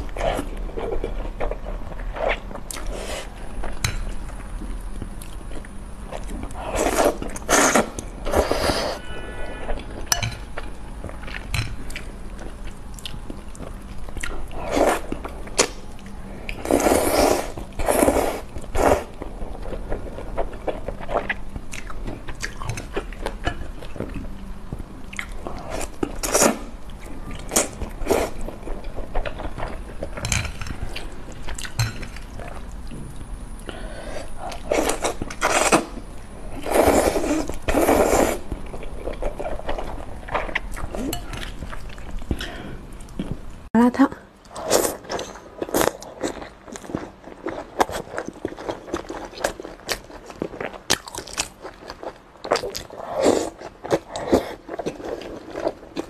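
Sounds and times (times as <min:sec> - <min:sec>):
chewing and smacking: 0:45.0 - 0:56.0.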